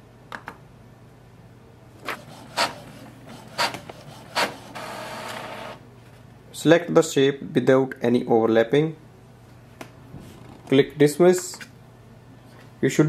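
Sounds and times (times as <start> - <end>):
printer mechanical clicks: 2.0 - 5.8
printer whirring: 2.0 - 5.8.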